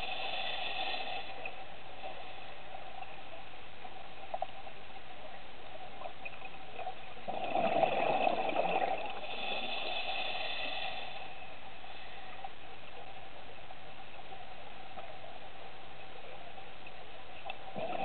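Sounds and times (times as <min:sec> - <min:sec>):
underwater hiss: 0:00.0 - 0:02.9, 0:07.7 - 0:12.5
faint steady hum: 0:00.0 - 0:18.0
gurgling bubbles: 0:06.3 - 0:10.2, 0:17.5 - 0:18.0.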